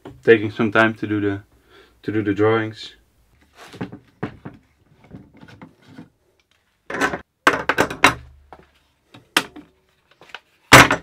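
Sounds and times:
metal clamps knocking and clattering: 6.9s - 8.4s.

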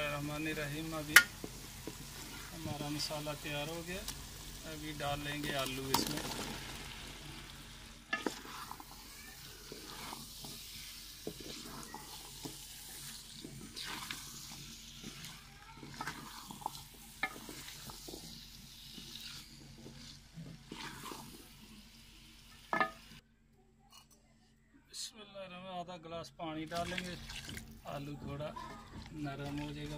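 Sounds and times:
frying hiss: 0.0s - 23.2s, 26.6s - 29.9s
spatula scraping and knocking pot: 8.0s - 21.4s.

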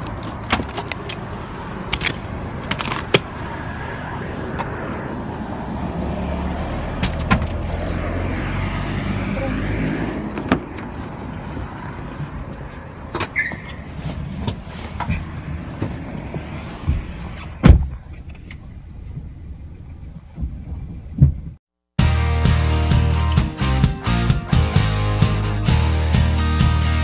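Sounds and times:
car engine rumble: 0.0s - 21.6s
loud thump: 16.8s - 18.0s
music: 22.0s - 27.0s.

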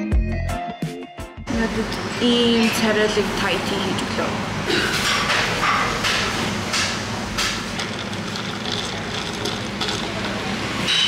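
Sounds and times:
ice clinking in a glass: 7.7s - 11.0s.

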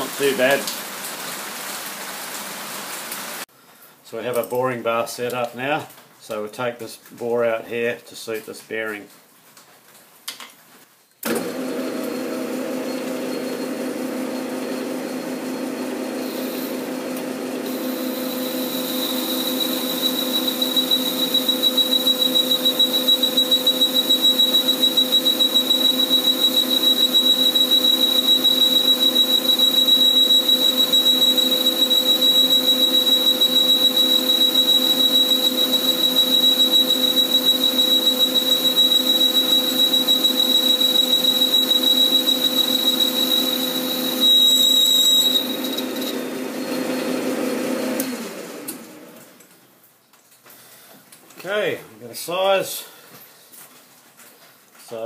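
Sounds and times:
metal lathe running: 17.6s - 46.4s
high steady cutting whine: 17.6s - 46.8s.

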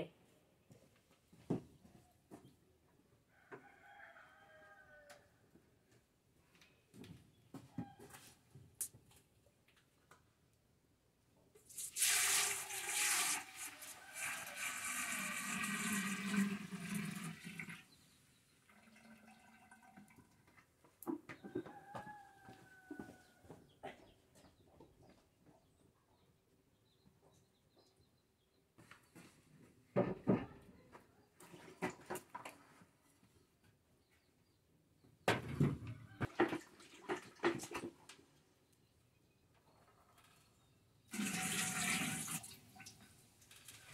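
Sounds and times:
water pouring into a pot: 11.7s - 17.9s, 18.6s - 20.4s, 41.1s - 43.9s.

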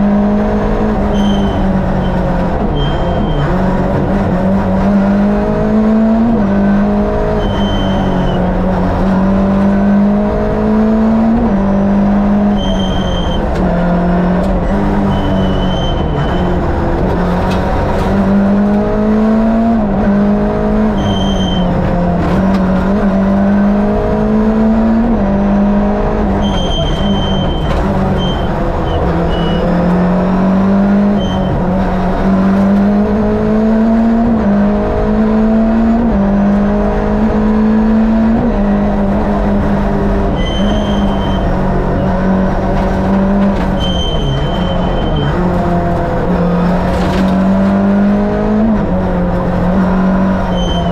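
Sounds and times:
rally car engine revving: 0.0s - 50.9s
brief high squeals: 1.1s - 2.2s, 2.8s - 3.5s, 7.4s - 8.4s, 12.5s - 13.4s, 15.1s - 16.6s, 21.0s - 21.7s, 26.4s - 29.7s, 31.2s - 31.6s, 40.4s - 41.5s, 43.8s - 45.3s, 50.5s - 50.9s.

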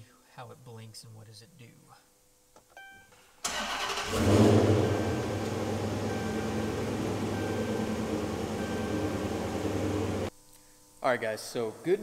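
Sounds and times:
car engine revving and idling: 3.6s - 10.3s.

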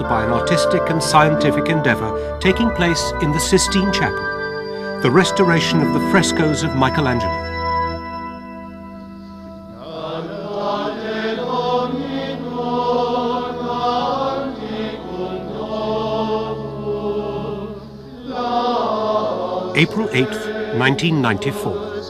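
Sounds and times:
choir singing a chant: 0.0s - 4.1s, 9.7s - 22.0s.

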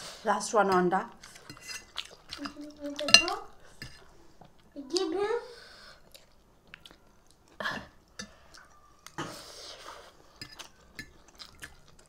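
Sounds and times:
cutlery clinking on plates: 1.5s - 4.0s, 10.4s - 11.2s.

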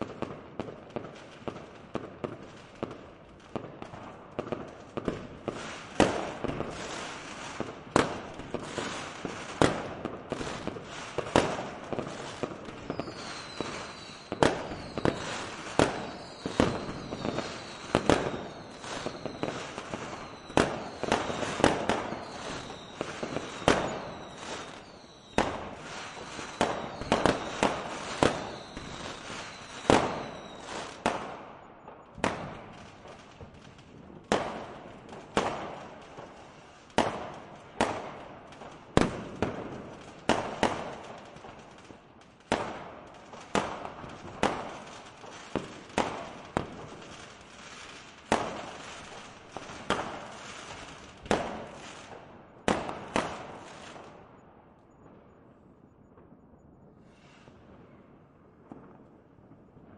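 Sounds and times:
firework bangs: 0.0s - 54.2s
fireworks crackling: 0.0s - 54.4s, 56.2s - 59.9s
high falling whistles: 12.9s - 25.4s, 26.0s - 31.0s.

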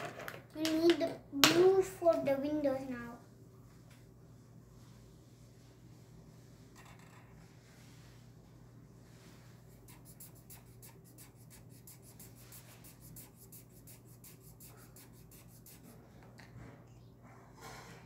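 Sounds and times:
marker scribbling on paper: 9.7s - 16.0s.

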